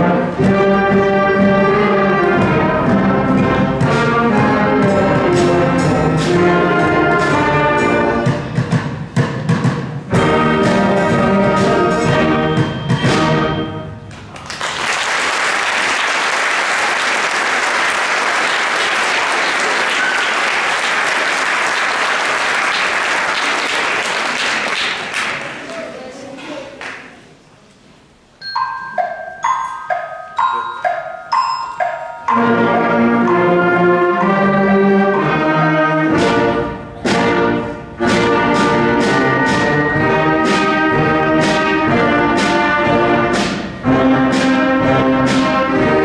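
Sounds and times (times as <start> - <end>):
concert band playing: 0.0 - 14.2, 17.5 - 25.1, 28.5 - 46.0
audience applauding: 14.1 - 26.0.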